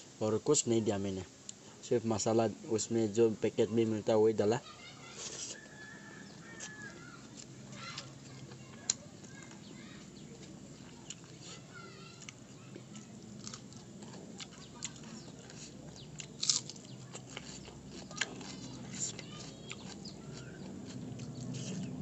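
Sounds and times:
faint birds chirping: 0.2s - 22.0s
chewing and mouth smacks: 5.5s - 22.0s.

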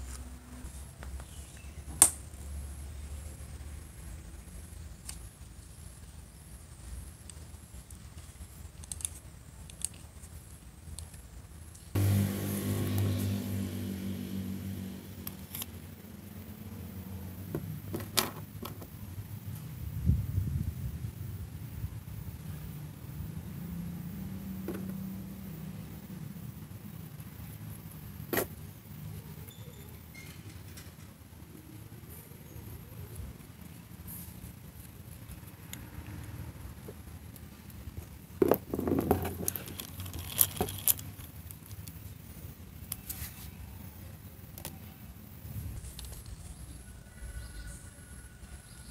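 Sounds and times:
metal parts clicking and tapping: 38.4s - 42.0s.

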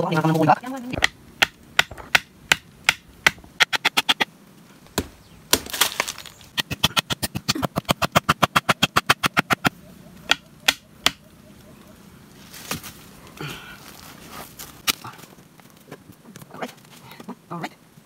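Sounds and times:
wooden club pounding stakes: 1.0s - 4.2s, 4.9s - 9.7s, 10.3s - 11.2s.

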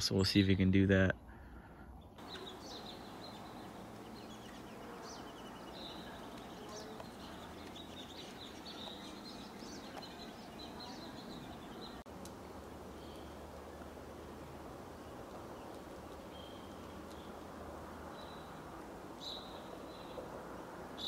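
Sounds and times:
songbirds chirping: 0.0s - 21.0s.

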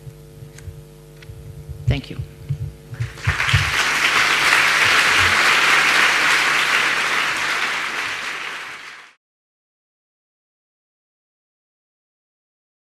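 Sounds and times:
audience applauding: 3.0s - 9.2s.

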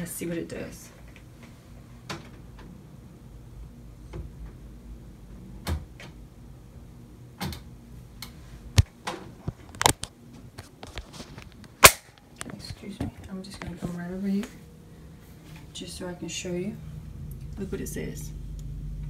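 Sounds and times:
phone being handled: 9.5s - 11.8s.

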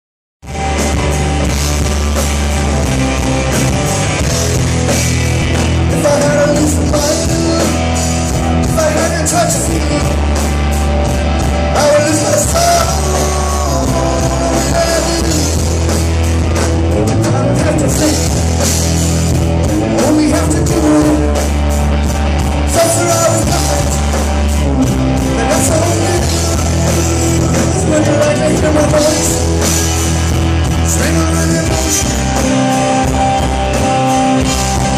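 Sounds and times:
bass guitar: 0.4s - 34.9s
drums: 0.4s - 34.9s
electric guitars: 0.4s - 34.9s
man singing into microphone: 5.9s - 8.0s, 8.6s - 10.2s, 11.7s - 15.7s, 17.0s - 18.4s, 19.9s - 21.4s, 22.7s - 24.1s, 25.3s - 29.4s, 30.8s - 32.3s.

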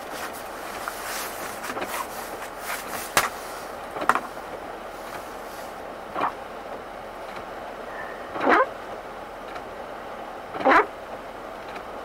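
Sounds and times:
windshield wipers squeaking: 0.0s - 6.5s, 7.3s - 8.8s, 10.5s - 10.9s
cabin hum: 0.0s - 12.0s.

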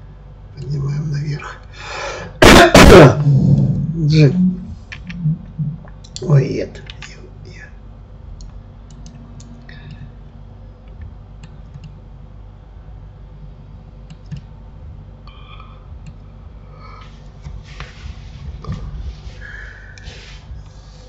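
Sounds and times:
low steady hum: 0.0s - 21.0s
computer mouse clicks: 8.4s - 10.1s, 10.8s - 12.0s, 14.1s - 14.5s
keyboard clicks: 10.8s - 12.0s, 14.1s - 14.5s.

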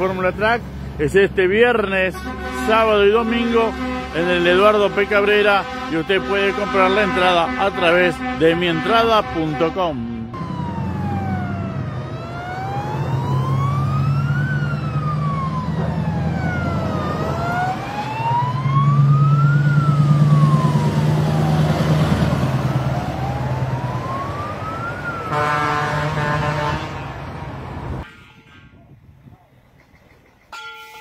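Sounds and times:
diesel trucks rumbling: 0.0s - 30.5s
vehicle horn: 2.0s - 10.4s, 25.3s - 28.8s
siren wailing: 3.2s - 28.0s.

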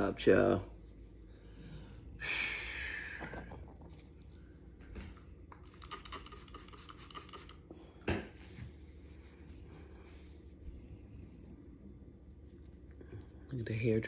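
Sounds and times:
hands rubbing and scratching wig: 8.3s - 14.0s.

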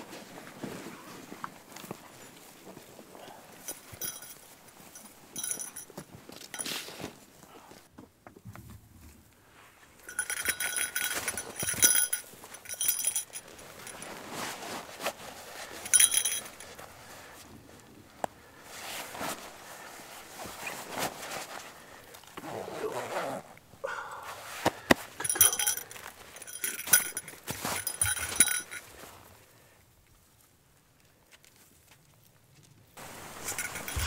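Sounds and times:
metallic jingling: 3.6s - 6.8s, 10.0s - 14.2s, 15.7s - 16.8s, 25.2s - 29.0s, 33.0s - 34.0s.

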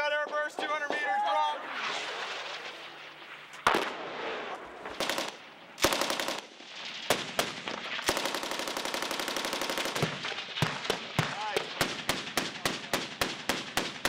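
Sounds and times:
machine gun firing: 4.9s - 14.0s.

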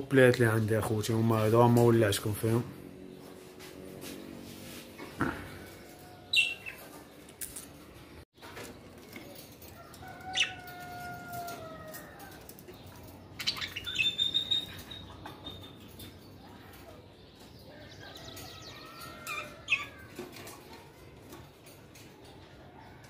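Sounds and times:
budgerigars chirping and whistling: 6.3s - 6.9s, 13.4s - 15.8s.

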